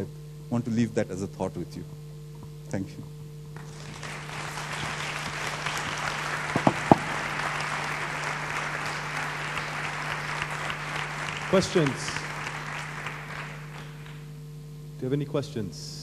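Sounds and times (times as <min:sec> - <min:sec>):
audience applauding: 0:03.6 - 0:14.3.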